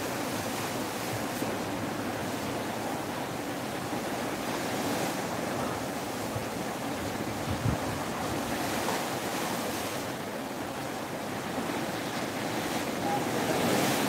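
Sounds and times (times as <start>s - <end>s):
sea water rushing along hull: 0.0s - 14.0s
wind blowing across microphone: 4.4s - 10.4s.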